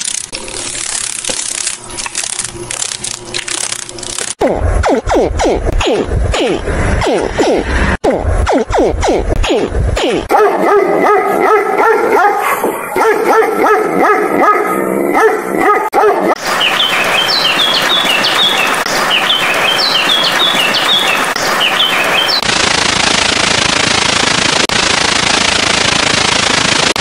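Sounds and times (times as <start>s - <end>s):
dog barking and yipping: 10.3s - 16.4s
rain hiss: 16.4s - 22.4s
sparrows chirping: 16.4s - 22.4s.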